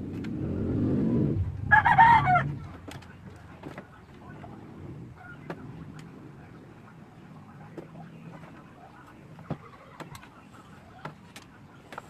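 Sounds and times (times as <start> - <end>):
low rumble: 0.0 - 3.4
rooster crowing: 1.6 - 2.6.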